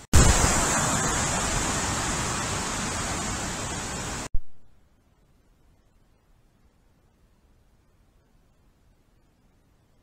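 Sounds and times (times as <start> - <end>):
loud rushing hiss: 0.0 - 4.3.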